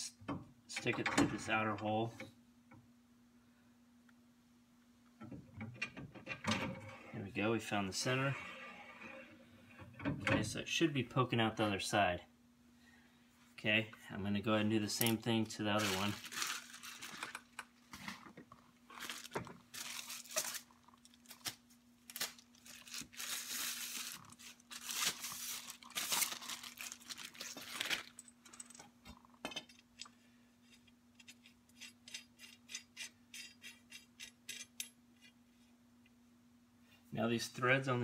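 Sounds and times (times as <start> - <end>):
metal rod scraping and clinking: 29.5 - 35.4.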